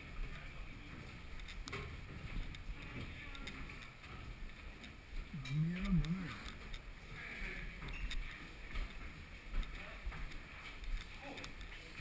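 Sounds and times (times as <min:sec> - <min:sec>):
person grunting: 0:05.4 - 0:06.5
footsteps on stairs: 0:07.7 - 0:12.0.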